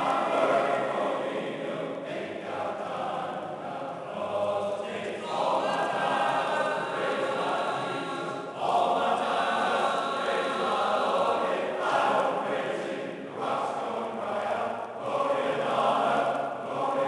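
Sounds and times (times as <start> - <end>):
man singing chant-like: 2.5 - 12.5.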